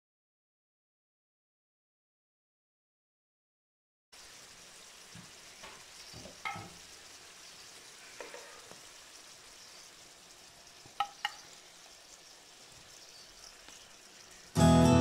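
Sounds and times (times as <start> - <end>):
faint sizzle of frying in oil: 4.2 - 15.0.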